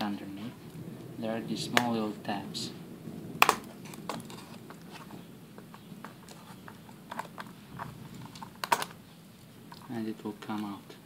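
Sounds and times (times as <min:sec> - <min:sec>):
plastic case clicks: 0:03.4 - 0:04.2, 0:07.1 - 0:09.0.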